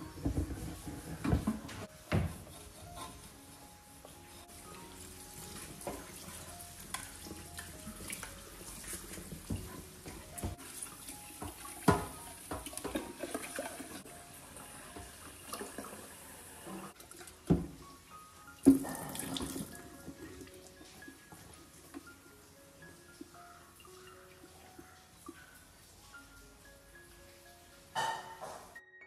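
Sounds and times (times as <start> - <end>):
tap water running and splashing: 0.0 - 28.4
water pouring from kettle: 10.6 - 14.1, 18.6 - 20.5.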